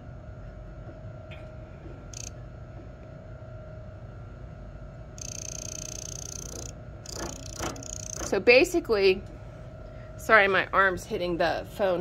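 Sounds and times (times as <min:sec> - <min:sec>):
motor humming: 0:05.1 - 0:08.5.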